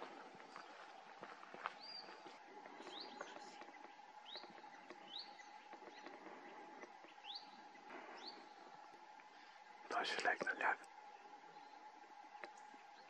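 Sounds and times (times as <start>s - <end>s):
background hiss: 0.0s - 13.0s
faint steady hum: 0.0s - 13.0s
bird chirps: 1.6s - 8.7s.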